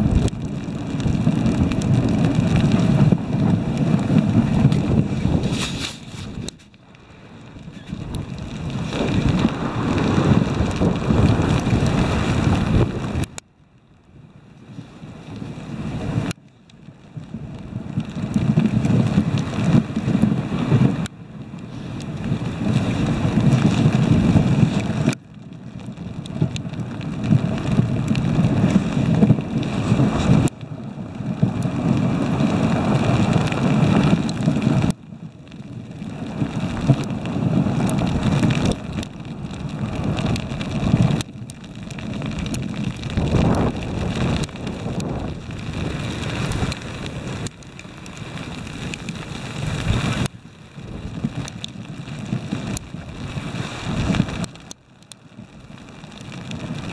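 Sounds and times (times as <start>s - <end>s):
wind buffeting microphone: 0.0s - 13.4s, 17.0s - 56.9s
sled runners hissing on snow: 4.1s - 6.4s.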